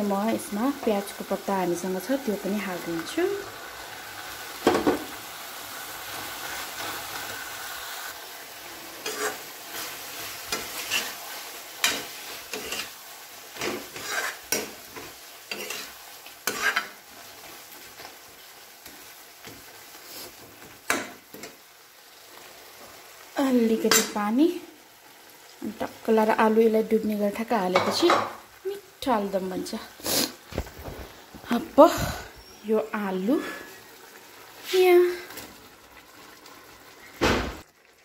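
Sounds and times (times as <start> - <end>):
food sizzling: 0.0 - 38.0
spoon scraping a pan: 8.8 - 17.6.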